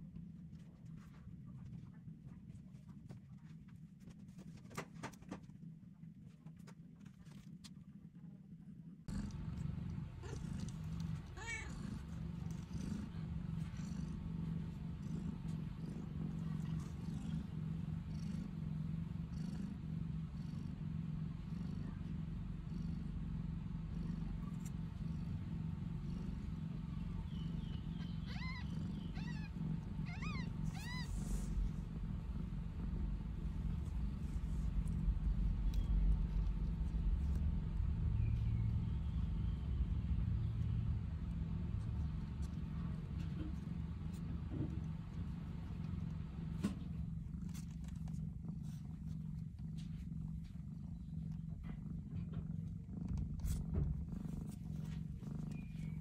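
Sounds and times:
cat purring: 0.0 - 56.0
low rumble: 9.1 - 56.0
kittens mewing: 9.2 - 16.9, 27.1 - 33.2.

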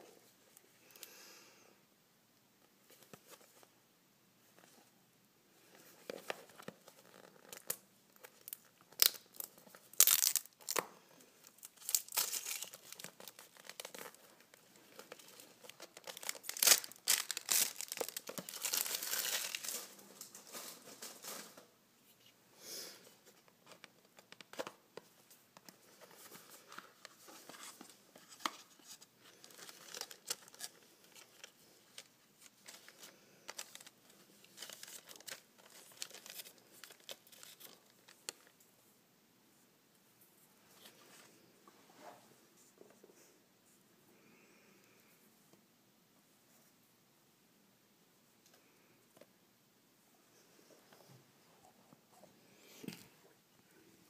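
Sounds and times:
packaging being torn and crinkled: 7.0 - 21.4, 29.4 - 38.5.

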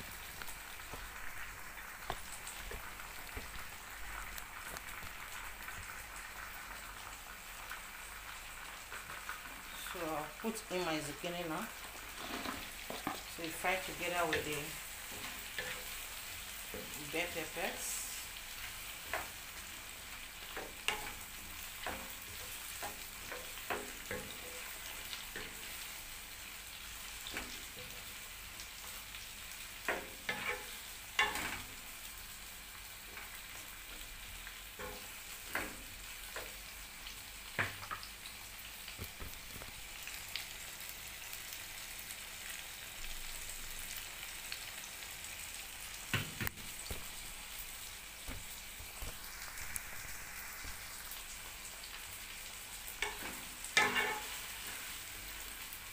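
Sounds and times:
vegetables sizzling in oil: 0.0 - 55.9
wooden spoon scraping pan: 12.1 - 13.3.

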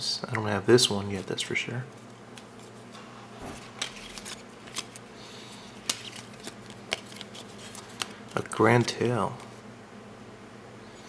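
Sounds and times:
card edges snapping: 3.5 - 8.5.

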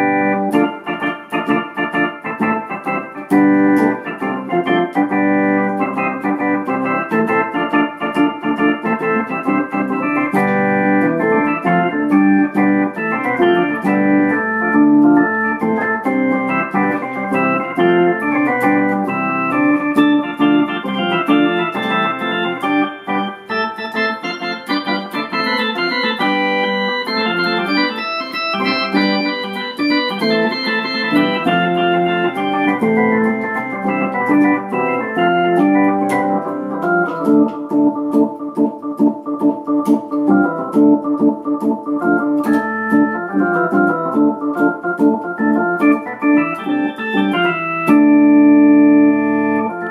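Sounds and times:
electronic keyboard organ chords: 0.0 - 49.9.

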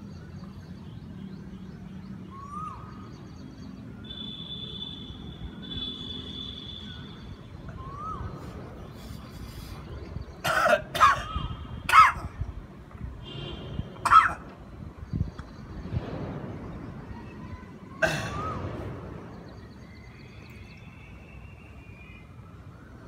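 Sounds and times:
man coughing and gagging: 10.4 - 11.3, 11.9 - 12.3, 14.0 - 14.4.

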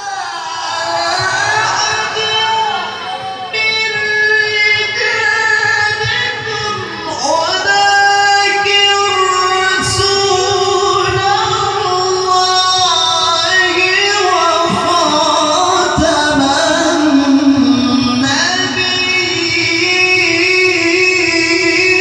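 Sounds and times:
man chanting through a microphone: 0.0 - 22.0.

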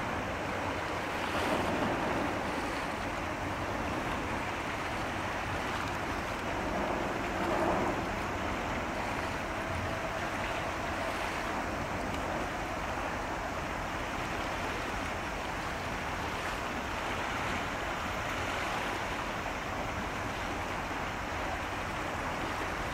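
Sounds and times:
water rushing: 0.0 - 22.9.

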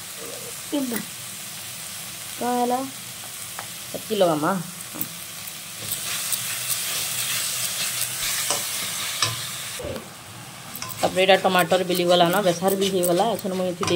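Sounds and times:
curry sizzling in a pan: 0.0 - 13.9
spatula stirring and scraping: 5.8 - 9.4, 10.8 - 13.9.

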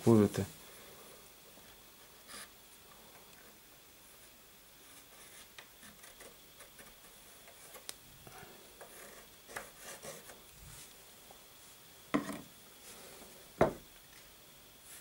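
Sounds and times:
pencil scratching on wood: 5.0 - 7.8, 8.8 - 10.4.

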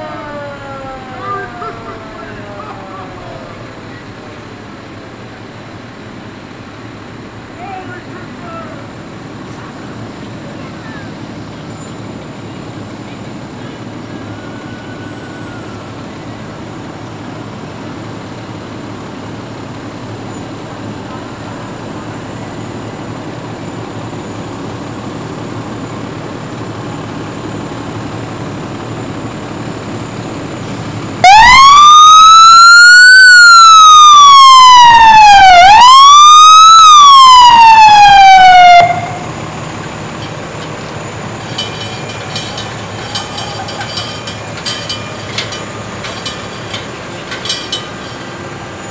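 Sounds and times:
fire truck siren wailing: 0.0 - 4.5, 12.8 - 17.8, 28.4 - 46.9
fire truck engines rumbling: 0.0 - 48.9.

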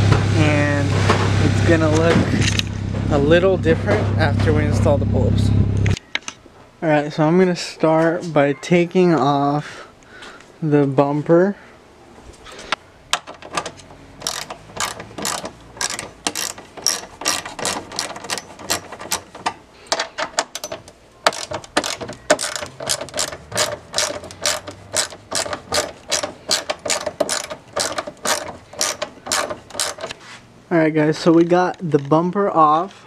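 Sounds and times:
hand ratchet clicking: 14.2 - 30.2.

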